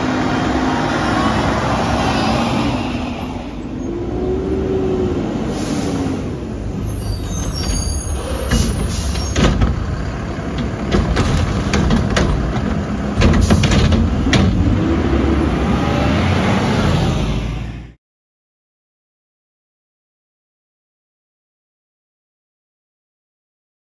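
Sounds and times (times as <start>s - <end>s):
truck engine running: 6.3s - 15.3s
truck clanks and knocks: 7.1s - 15.3s.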